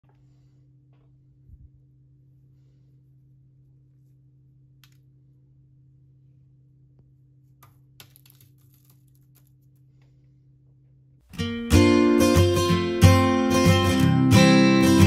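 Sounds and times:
low steady hum: 0.0s - 11.4s
cookie crackling as it breaks: 8.0s - 9.9s.

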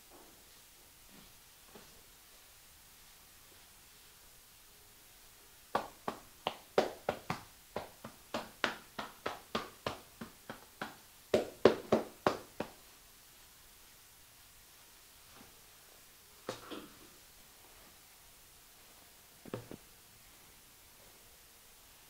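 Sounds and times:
hand taps on skin: 5.8s - 12.8s.

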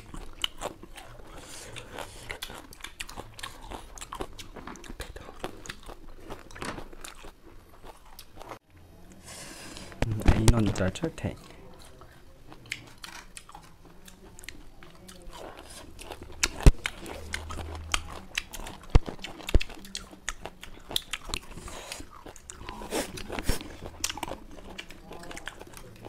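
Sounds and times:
wet chewing and crunching: 0.0s - 8.6s, 10.1s - 26.0s.

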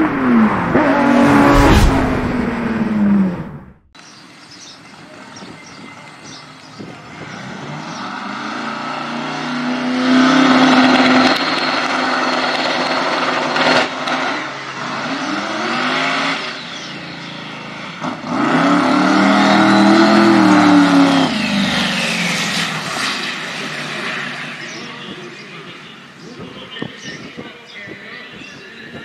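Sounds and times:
drag car engine revving: 7.0s - 25.1s.

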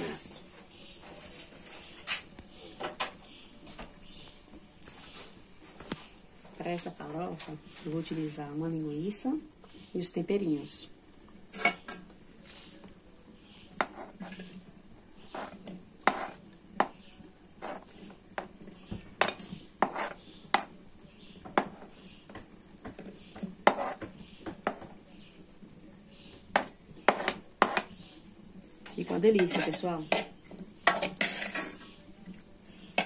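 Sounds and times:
metal spoon scraping and clinking: 19.2s - 20.7s, 29.3s - 32.0s.

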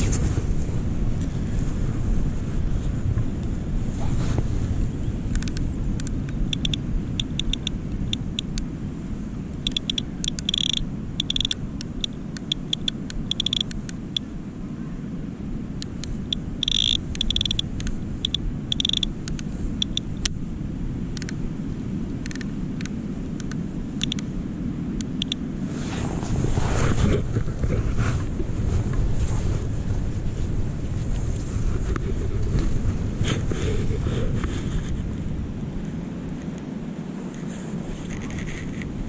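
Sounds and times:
wind buffeting microphone: 0.0s - 39.0s
sharp high clicks: 5.3s - 8.7s, 9.6s - 14.2s, 15.8s - 20.4s, 21.1s - 21.4s, 22.2s - 24.3s, 25.0s - 25.4s.

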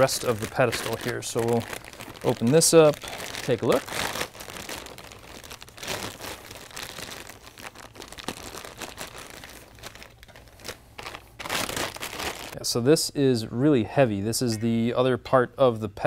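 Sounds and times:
plastic bag crinkling: 0.0s - 12.6s.

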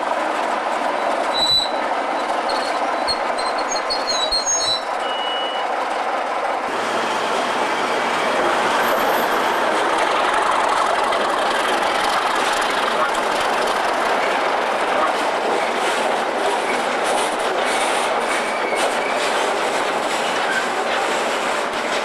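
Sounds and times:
diesel locomotives rumbling past: 0.0s - 22.0s
short high squeals: 1.4s - 5.8s.

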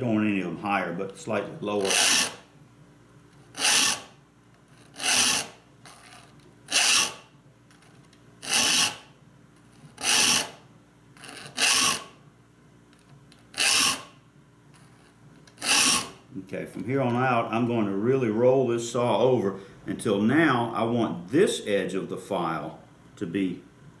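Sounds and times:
file strokes on saw teeth: 3.5s - 4.1s, 4.8s - 7.2s, 8.4s - 9.0s, 10.0s - 10.6s, 11.2s - 12.1s, 13.6s - 14.1s, 15.6s - 16.2s.

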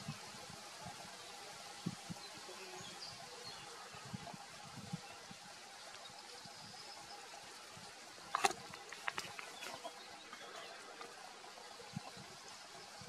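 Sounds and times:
distant bird calls: 6.1s - 13.0s.

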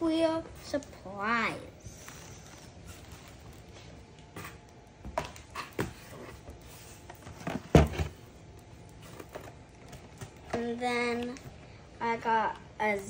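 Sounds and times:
cardboard and plastic packaging rustling: 0.5s - 11.6s
thump in a cardboard box: 7.5s - 8.2s.

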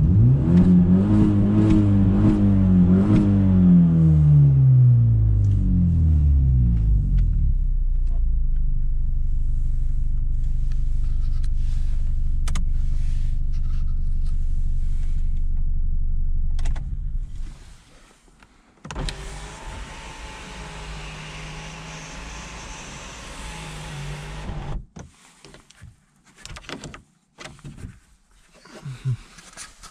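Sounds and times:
car engine idling: 5.1s - 17.6s.

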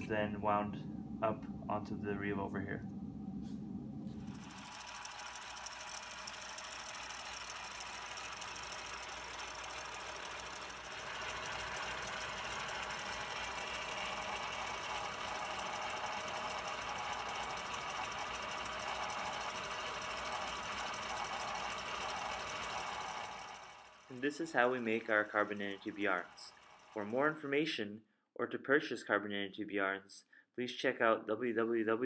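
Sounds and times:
ropemaking machine whirring and rattling: 4.0s - 27.4s.

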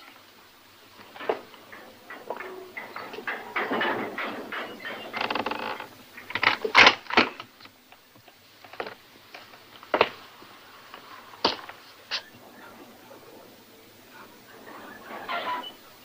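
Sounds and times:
creaking and scraping: 0.9s - 7.7s, 10.8s - 16.0s.

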